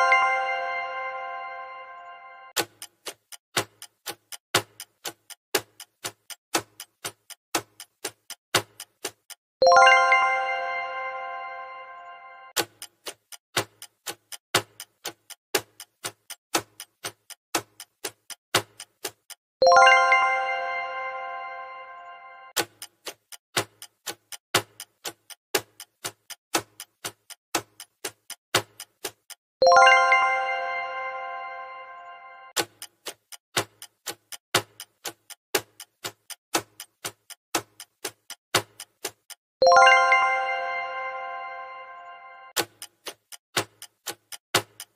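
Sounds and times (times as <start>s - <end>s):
chime: 0.0s - 2.6s, 9.6s - 12.6s, 19.6s - 22.6s, 29.6s - 32.6s, 39.6s - 42.6s
timer clock ticking: 2.5s - 10.3s, 12.0s - 20.3s, 22.5s - 30.5s, 32.0s - 40.5s, 42.5s - 44.9s.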